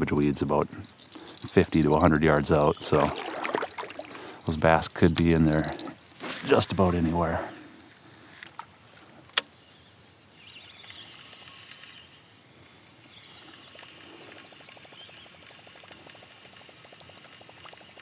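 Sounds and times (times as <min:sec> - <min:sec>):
sharp click: 0:09.3 - 0:09.5
birds chirping and singing: 0:09.5 - 0:17.1.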